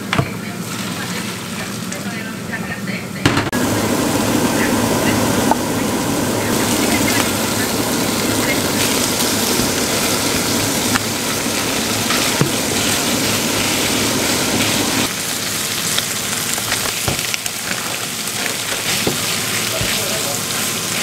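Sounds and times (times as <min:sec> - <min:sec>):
low hum: 0:03.4 - 0:15.1
food sizzling in frying pan: 0:03.6 - 0:21.0.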